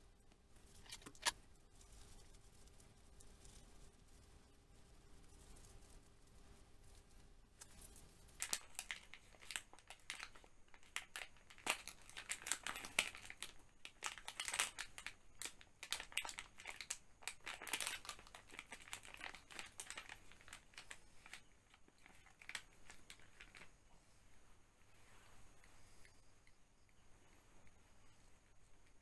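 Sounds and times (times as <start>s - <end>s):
plastic packet crinkling: 0.8s - 1.4s, 8.4s - 23.7s.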